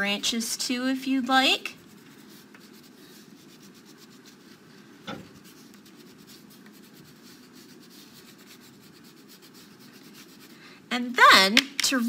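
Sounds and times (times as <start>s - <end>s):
crayon scratching on paper: 1.0s - 10.6s.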